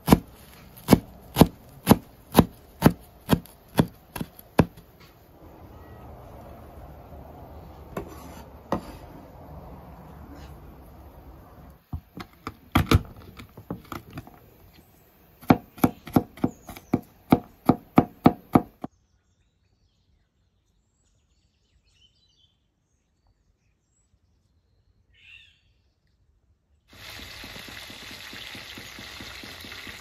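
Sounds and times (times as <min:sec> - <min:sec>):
knife chopping on wooden board: 0:00.0 - 0:04.9, 0:12.0 - 0:14.3, 0:15.4 - 0:18.9
faint bird chirp: 0:18.9 - 0:26.8.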